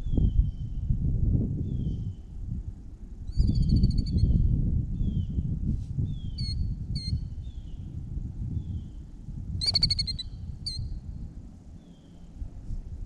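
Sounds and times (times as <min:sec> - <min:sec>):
wind rumble on microphone: 0:00.0 - 0:13.0
bird calling shrilly: 0:09.6 - 0:10.8.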